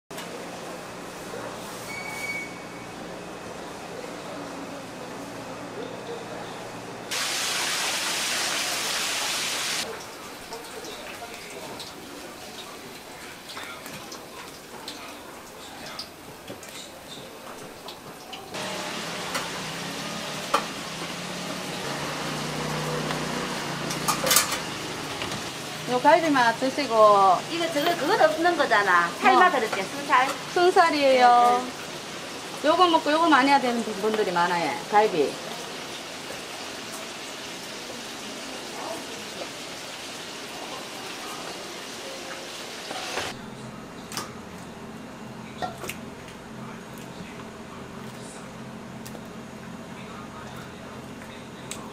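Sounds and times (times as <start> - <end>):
oil sizzling in a fryer: 7.1 - 43.4.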